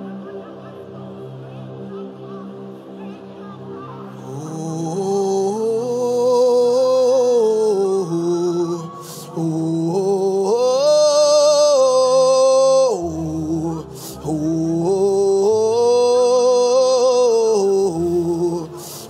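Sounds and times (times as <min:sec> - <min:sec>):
man chanting into a microphone: 0:04.3 - 0:19.0.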